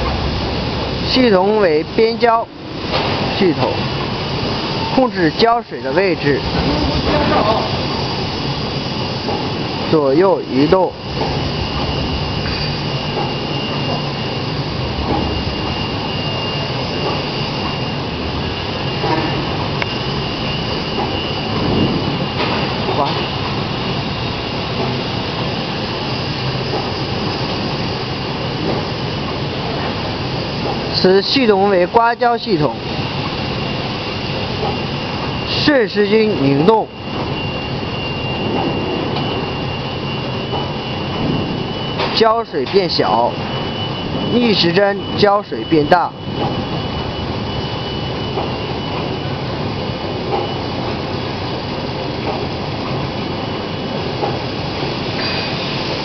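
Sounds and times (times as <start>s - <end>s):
machine running: 0.0s - 56.0s
paper bag machine running: 2.6s - 25.8s.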